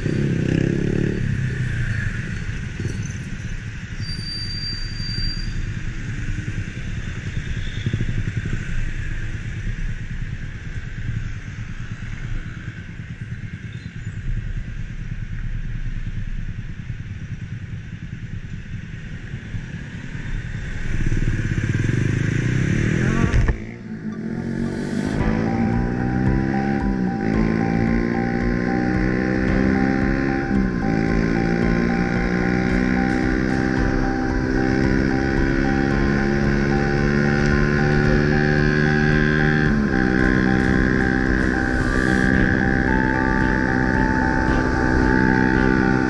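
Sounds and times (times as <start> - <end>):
road noise: 0.0 - 46.0
scooter engine running: 25.2 - 46.0.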